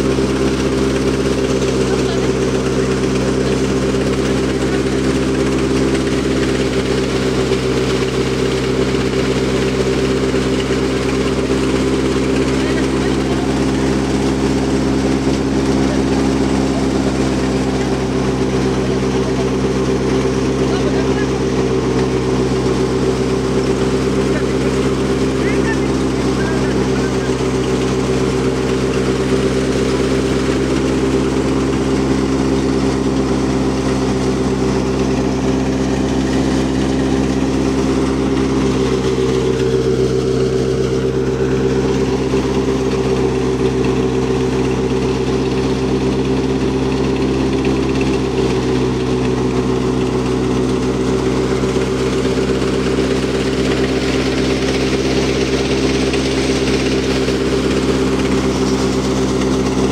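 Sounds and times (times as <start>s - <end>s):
thresher machine drone: 0.0s - 59.9s.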